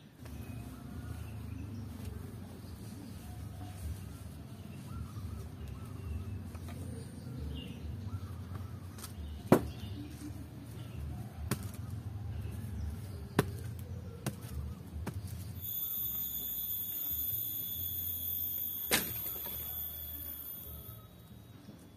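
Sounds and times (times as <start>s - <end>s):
high-pitched buzz: 15.6s - 21.9s.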